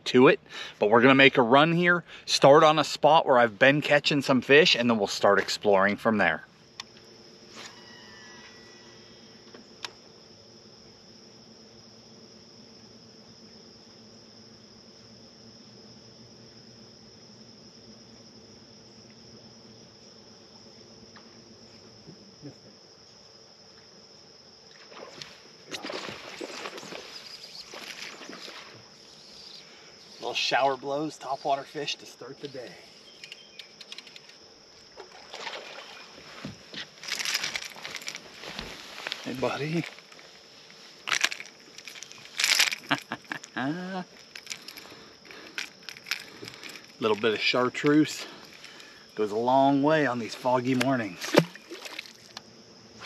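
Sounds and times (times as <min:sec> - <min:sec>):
crickets trilling: 0:00.0 - 0:53.0
fish splashing at water surface: 0:25.7 - 0:28.8, 0:51.2 - 0:52.4
sharp clicks: 0:33.2 - 0:34.4
rustling and scraping: 0:35.0 - 0:49.0
person making wordless vocal sound: 0:43.4 - 0:44.2.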